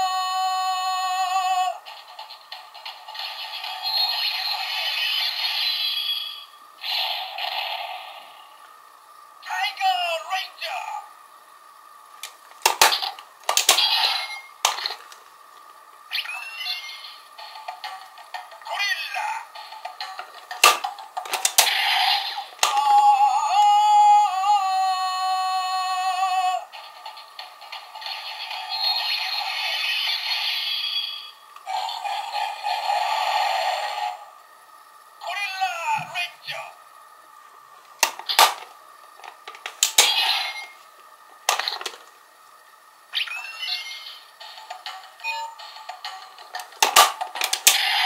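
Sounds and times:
plastic toy clicks: 20.5s - 21.7s, 46.6s - 47.8s.

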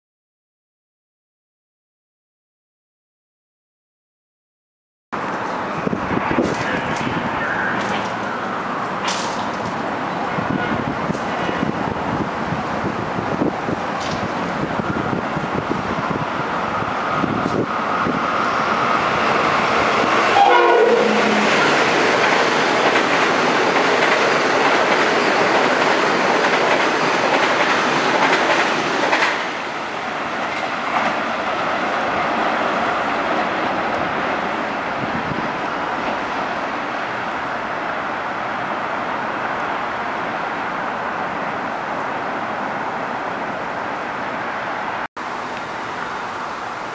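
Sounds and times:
train wheel-and-rail noise: 5.2s - 46.9s
train horn: 20.3s - 21.9s.

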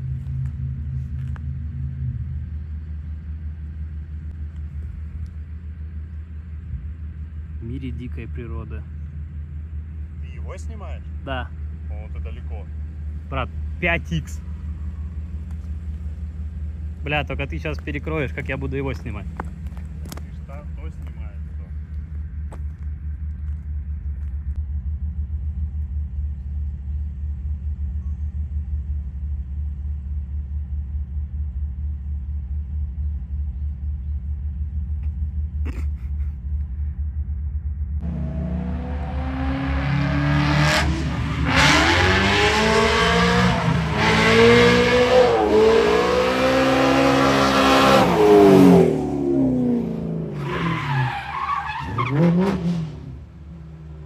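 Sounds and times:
steady low rumble: 0.0s - 41.3s
car engine revving: 29.8s - 54.0s
tyre squeal: 50.4s - 52.7s.

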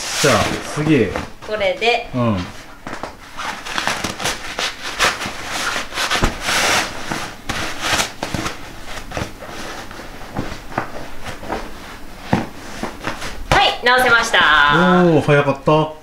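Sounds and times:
sleeping bag fabric rustling: 2.8s - 14.6s.

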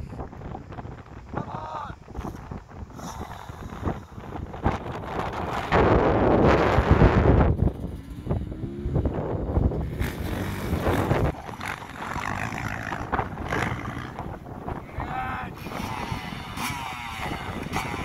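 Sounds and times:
wind buffeting microphone: 0.0s - 18.0s
dirt bike engine revving: 4.8s - 18.0s.

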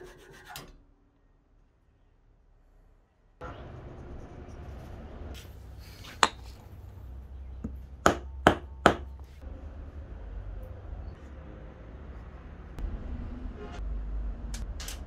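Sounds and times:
hammer striking wooden handle: 7.6s - 9.2s.

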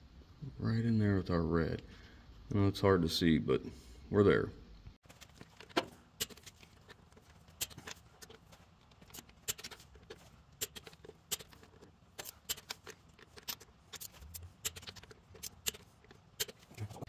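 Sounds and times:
torque wrench ratcheting: 10.6s - 15.8s.

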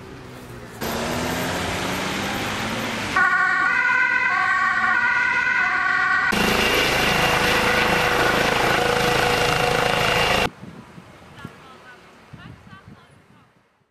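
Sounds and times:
outdoor noise: 0.0s - 13.9s
ambulance siren: 0.9s - 10.5s
helicopter rotor beating: 5.6s - 10.5s.

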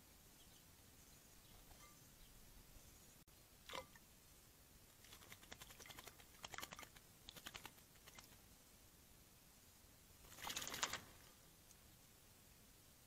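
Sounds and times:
bird splashing in water: 5.0s - 8.4s, 10.2s - 11.3s
faint small clicks: 11.6s - 11.8s.

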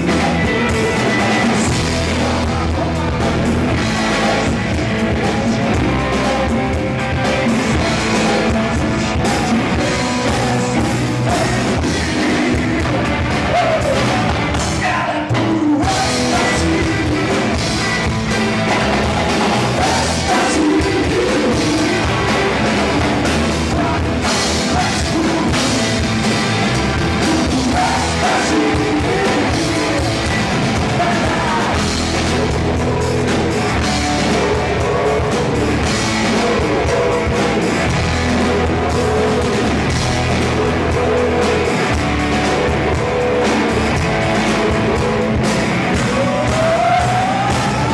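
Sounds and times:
live rock band playing: 0.0s - 47.9s
person singing: 0.0s - 47.9s.

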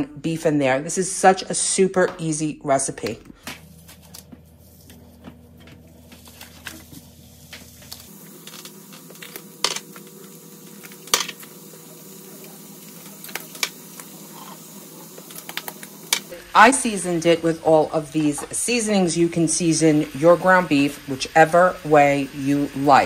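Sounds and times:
meat sizzling in a frying pan: 18.8s - 23.0s.

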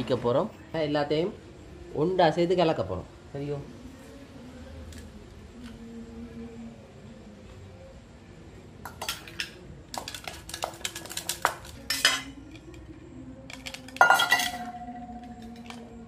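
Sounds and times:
metal spoon clinking on steel bowls: 8.9s - 12.9s, 13.5s - 16.0s.

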